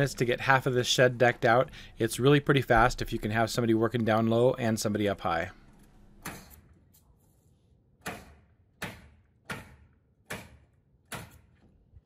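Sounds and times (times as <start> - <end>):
nails hammered into wood: 8.0 - 11.6.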